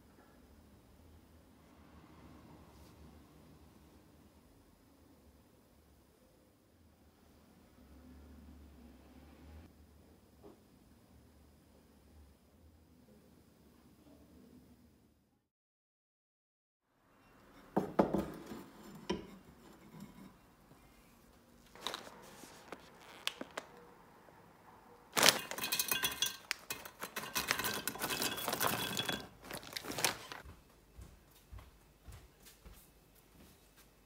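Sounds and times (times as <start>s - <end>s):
nuts rattling into a hopper: 25.2s - 30.4s.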